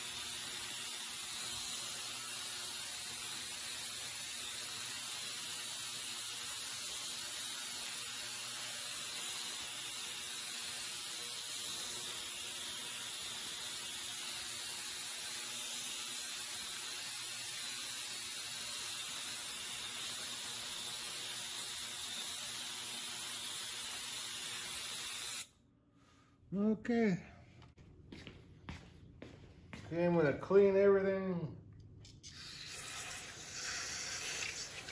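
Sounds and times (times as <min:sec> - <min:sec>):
ultrasonic cleaner hissing: 0:00.0 - 0:25.5, 0:32.5 - 0:34.9.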